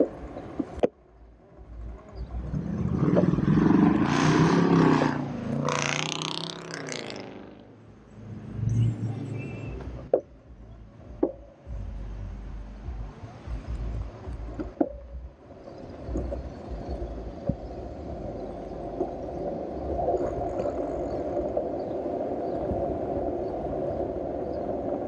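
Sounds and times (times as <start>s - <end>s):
car driving past: 2.3s - 10.1s.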